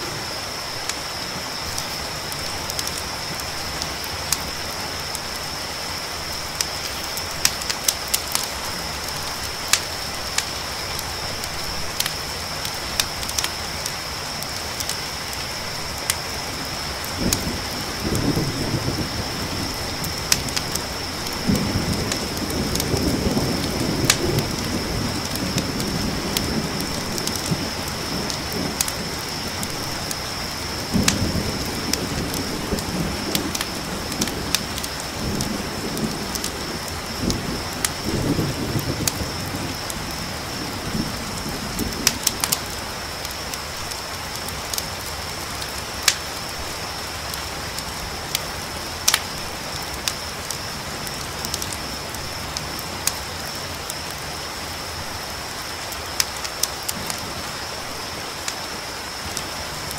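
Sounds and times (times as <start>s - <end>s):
thunder rumbling: 0.0s - 44.7s
campfire crackling: 0.0s - 59.9s
cricket trill: 0.0s - 59.9s
steady rain: 0.0s - 59.9s.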